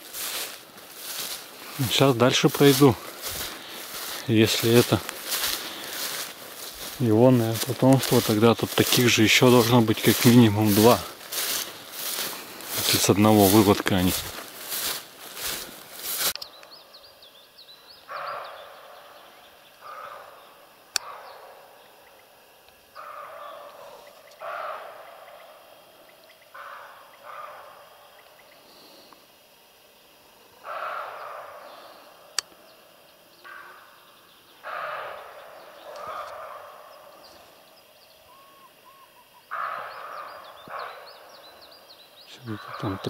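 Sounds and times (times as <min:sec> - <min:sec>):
deer barking: 0:00.1 - 0:16.2, 0:19.8 - 0:20.4, 0:23.0 - 0:25.1, 0:30.6 - 0:31.9, 0:34.6 - 0:37.2, 0:39.5 - 0:41.0, 0:42.3 - 0:43.0.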